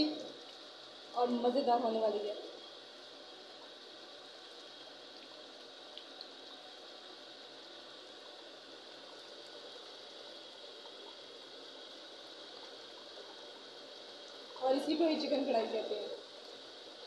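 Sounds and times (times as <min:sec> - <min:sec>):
gravy bubbling in a pot: 0:00.0 - 0:17.0.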